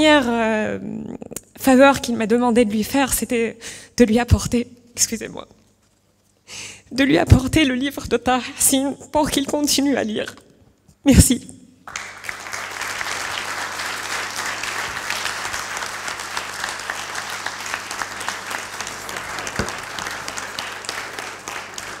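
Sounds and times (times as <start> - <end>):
audience applauding: 11.9 - 22.0.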